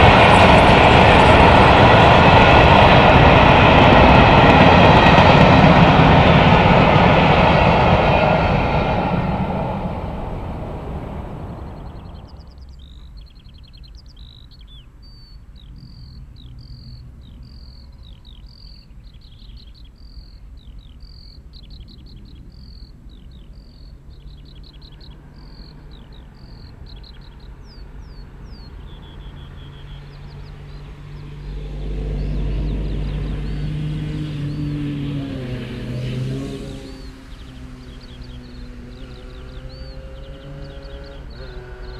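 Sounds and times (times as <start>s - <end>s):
passing steam train: 0.0s - 12.7s, 23.7s - 41.9s
low rumble of steam locomotive: 0.0s - 41.9s
songbird singing trills: 11.3s - 35.6s, 36.3s - 41.9s.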